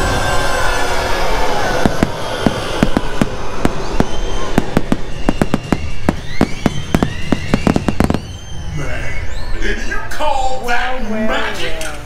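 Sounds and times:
fireworks bursting bangs: 0.0s - 8.7s.

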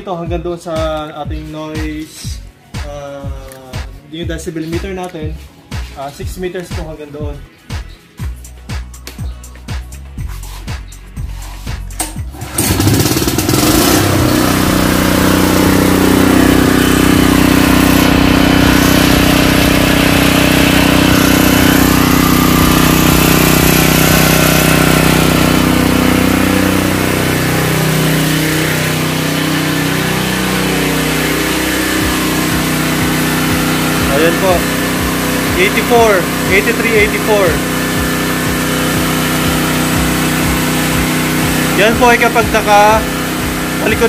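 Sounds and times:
generator engine running: 9.7s - 44.0s.

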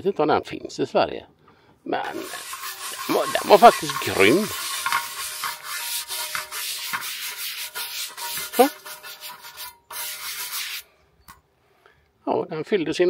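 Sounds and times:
brush scrubbing metal pan: 2.0s - 10.9s.

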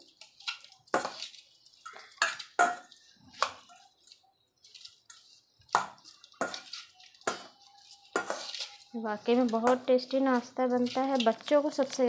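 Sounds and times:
potato masher clinking on steel bowl: 5.7s - 12.0s.

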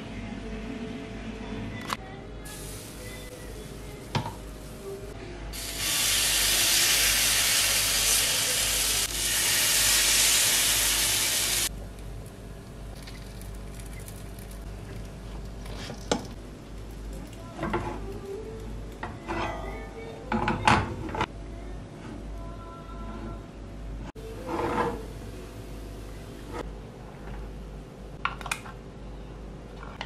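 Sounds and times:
water sizzling on hot metal: 5.6s - 11.7s.

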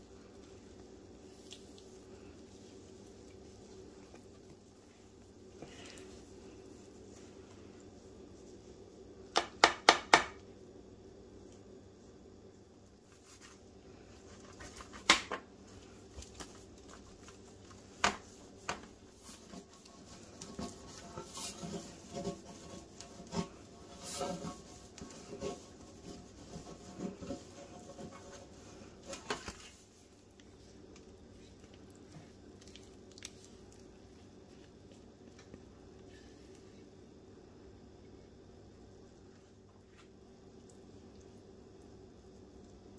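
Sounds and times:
butter scraping on metal pan: 19.4s - 28.6s.

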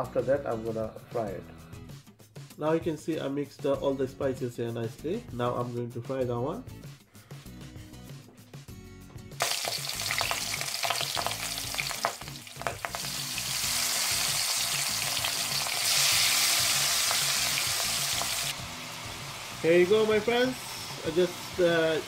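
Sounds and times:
chicken sizzling in hot oil: 9.4s - 22.0s.

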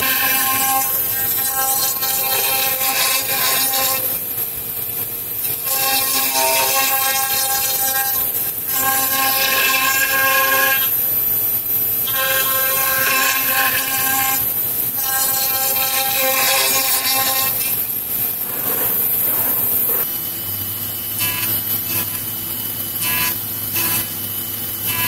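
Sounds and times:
milling machine spindle whine: 0.0s - 25.0s.

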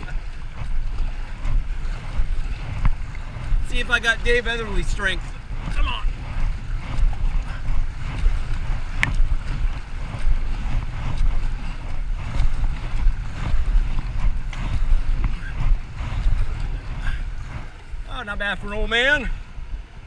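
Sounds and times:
paddle strokes: 0.0s - 20.0s
rushing water: 0.0s - 20.0s
wind buffeting microphone: 0.0s - 20.0s.

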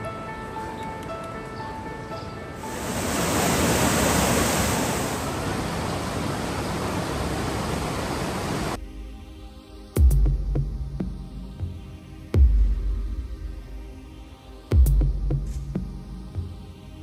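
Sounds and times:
background music: 0.0s - 3.7s, 8.8s - 17.0s
river water rushing: 2.6s - 8.8s.

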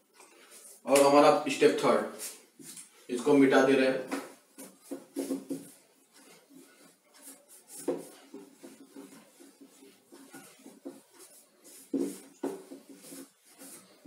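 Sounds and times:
duster wiping a whiteboard: 0.4s - 14.0s.

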